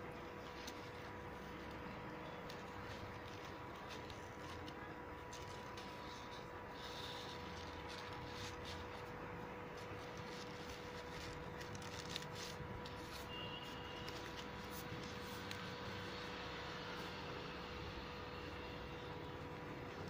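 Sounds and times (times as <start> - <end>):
faint constant tone: 0.0 - 20.0
ribbon rustling and clicks: 0.2 - 15.8.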